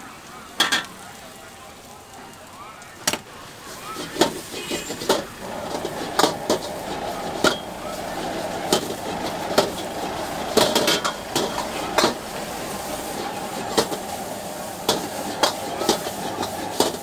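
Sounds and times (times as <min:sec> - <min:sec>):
frying hiss: 0:00.0 - 0:17.0
metal utensils clanging on wok: 0:04.0 - 0:12.2.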